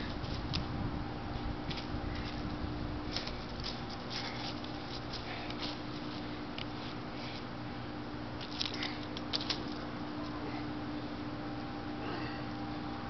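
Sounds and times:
steady low hum: 0.0s - 13.0s
dry leaves rustling and crunching: 1.6s - 7.4s.

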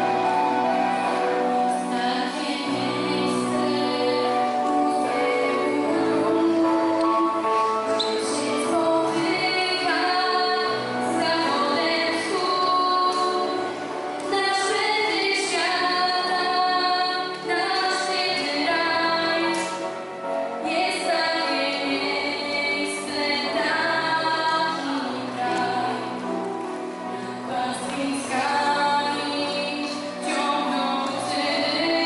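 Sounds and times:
musical accompaniment: 0.0s - 32.0s
girl singing into a microphone: 1.7s - 19.9s.

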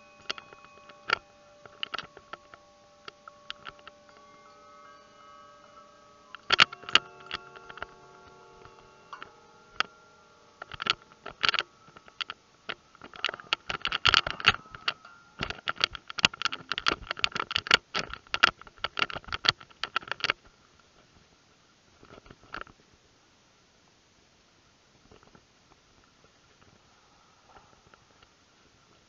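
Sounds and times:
faint steady ringing tone: 0.0s - 20.4s
irregular clicking and tapping: 0.0s - 20.5s.

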